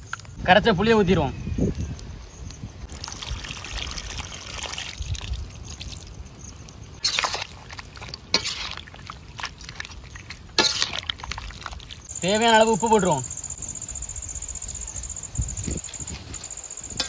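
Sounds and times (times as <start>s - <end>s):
liquid pouring into a pot: 2.9s - 6.6s.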